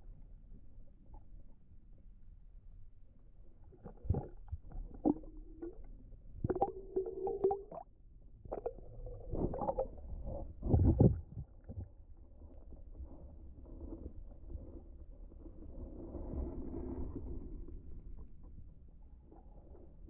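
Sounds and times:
muffled underwater thumps: 0:08.6 - 0:11.9.

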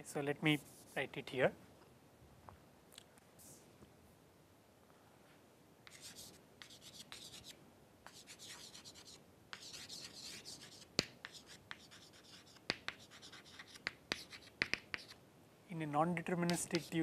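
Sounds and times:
chalk scratching on chalkboard: 0:00.6 - 0:01.1, 0:05.9 - 0:07.5, 0:08.1 - 0:15.2, 0:16.4 - 0:17.0
chalk tapping on board: 0:05.9 - 0:07.5, 0:08.1 - 0:15.2, 0:16.4 - 0:17.0.

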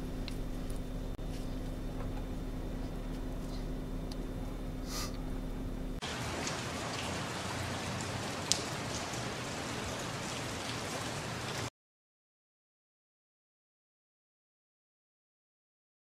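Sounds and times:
low vehicle hum: 0:00.0 - 0:10.6
falling water hiss: 0:06.0 - 0:11.7.

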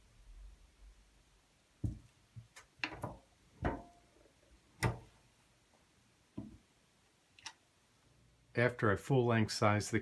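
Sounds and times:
metallic clicks and knocks: 0:04.8 - 0:05.2.

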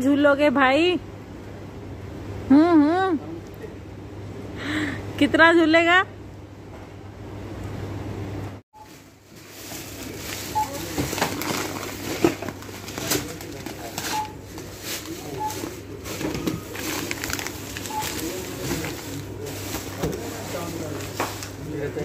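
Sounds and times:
clatter of goods: 0:09.6 - 0:21.6
barcode scanner beeps: 0:10.5 - 0:10.8, 0:14.1 - 0:14.4, 0:15.2 - 0:15.7, 0:17.8 - 0:18.6.

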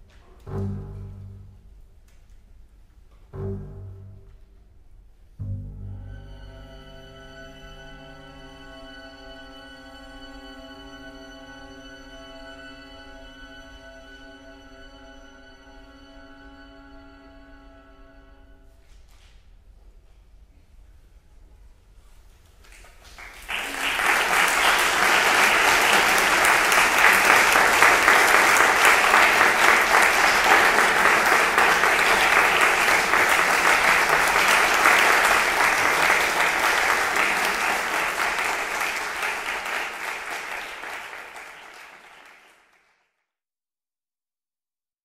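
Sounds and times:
audience applauding: 0:22.7 - 0:43.1.

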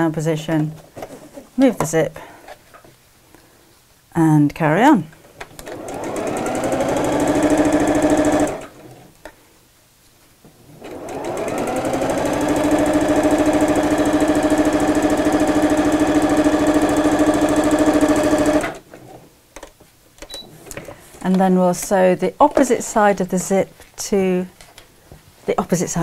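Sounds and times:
sewing machine stitching: 0:05.6 - 0:09.1, 0:10.8 - 0:19.2.

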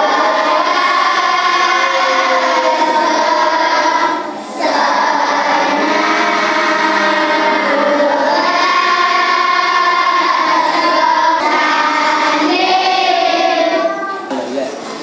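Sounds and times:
children singing in unison: 0:00.0 - 0:15.0.

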